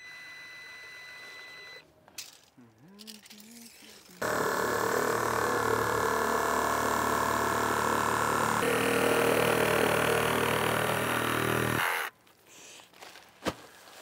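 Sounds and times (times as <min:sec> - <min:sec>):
reciprocating saw cutting insulation: 0:04.2 - 0:12.1.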